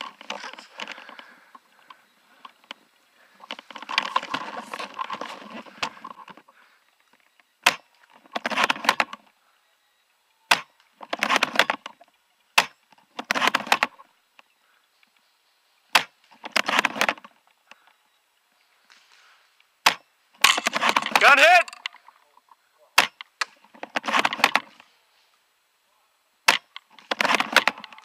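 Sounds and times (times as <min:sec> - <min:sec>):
rustle of handling: 0:00.0 - 0:07.4, 0:23.6 - 0:25.5.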